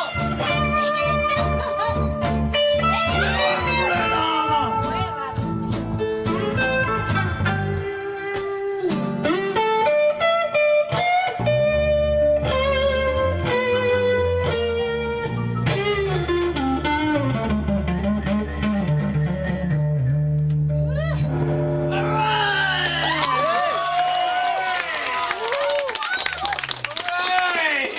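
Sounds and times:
live band playing: 0.0s - 20.2s
lead guitar bent notes: 0.0s - 22.8s
bass guitar: 0.0s - 23.6s.

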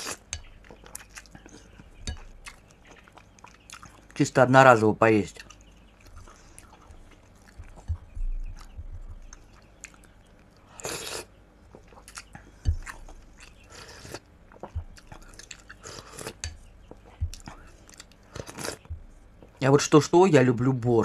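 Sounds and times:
person chewing and mouth sounds: 0.0s - 4.2s, 5.4s - 19.6s
soft low thumps: 6.1s - 9.6s, 12.6s - 13.4s, 14.4s - 15.3s, 16.5s - 17.8s, 18.8s - 19.6s.

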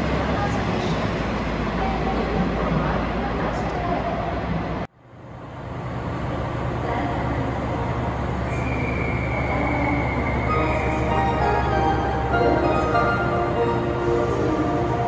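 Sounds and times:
train equipment humming: 0.0s - 15.0s
musical tones: 10.5s - 15.0s.

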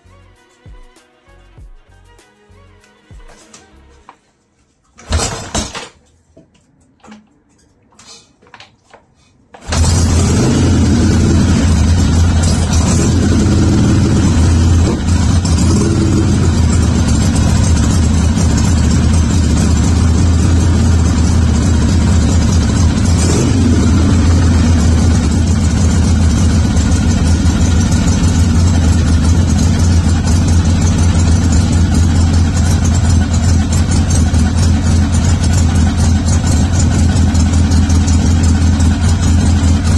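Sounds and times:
motorcycle engine idling: 9.6s - 39.9s
motorcycle engine revving: 9.6s - 39.9s.

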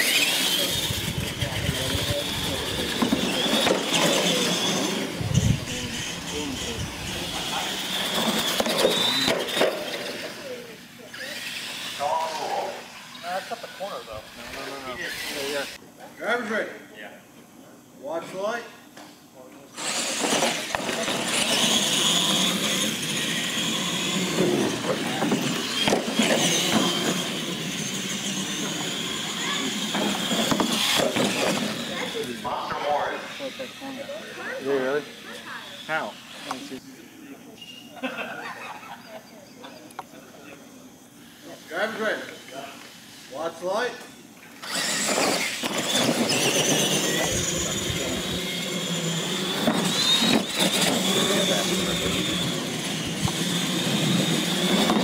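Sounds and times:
toy truck motors whining: 0.0s - 15.8s, 19.7s - 36.8s, 39.4s - 55.0s
tyre noise on concrete: 23.8s - 27.4s, 29.4s - 32.2s.

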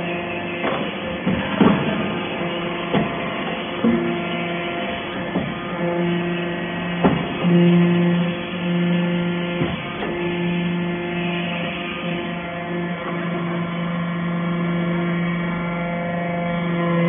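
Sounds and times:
hydraulic press humming: 0.0s - 17.0s
sharp knocks: 0.6s - 5.8s, 6.9s - 7.8s, 9.4s - 10.3s.

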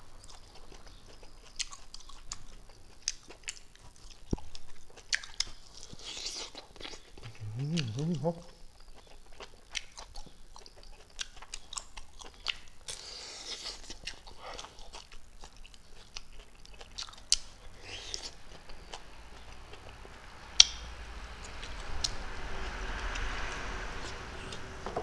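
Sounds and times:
close-up chewing: 0.0s - 20.7s
mouth clicks: 7.2s - 8.6s.

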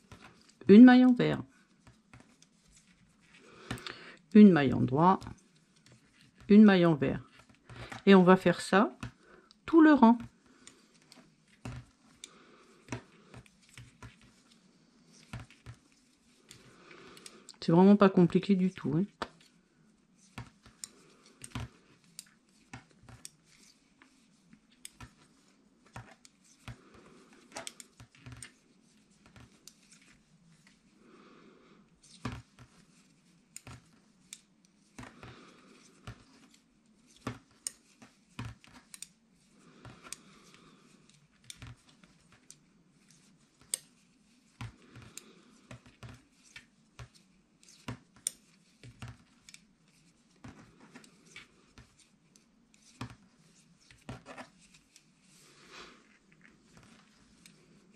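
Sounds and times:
knitting needles clicking: 16.4s - 19.5s, 24.8s - 25.2s, 25.9s - 28.6s, 33.5s - 39.2s, 39.9s - 44.0s, 44.6s - 49.7s.

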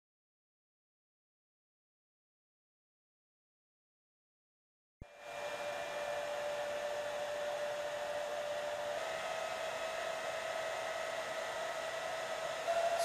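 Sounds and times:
cooling fan whirring: 5.0s - 13.0s.

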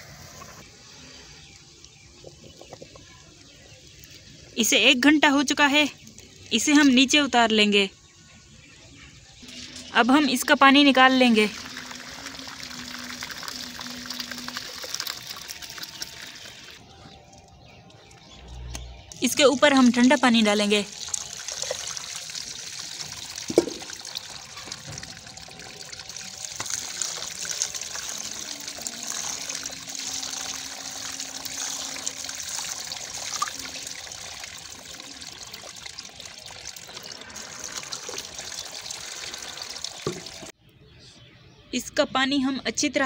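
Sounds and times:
water pouring into a colander: 10.3s - 16.8s, 19.2s - 40.5s.

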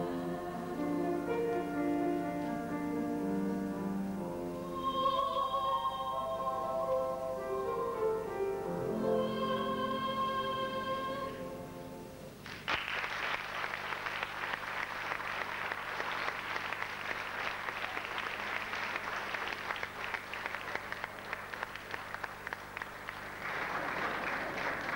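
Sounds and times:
audience applause: 12.4s - 24.9s.

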